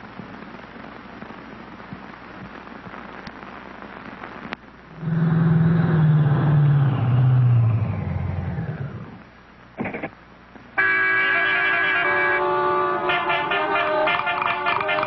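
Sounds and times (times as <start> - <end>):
faint film hiss: 0.0 - 14.7
cartoon car engine pulsing: 5.0 - 9.2.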